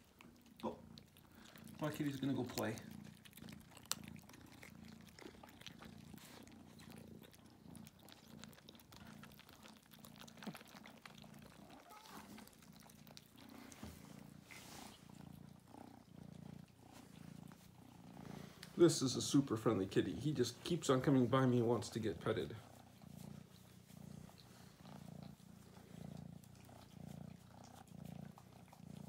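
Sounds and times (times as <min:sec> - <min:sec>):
kitten purring: 0:00.0 - 0:29.0.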